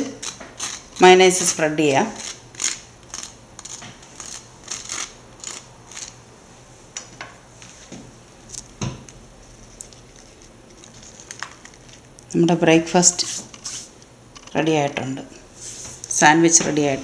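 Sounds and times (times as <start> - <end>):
knife scraping toast: 2.2 - 6.2.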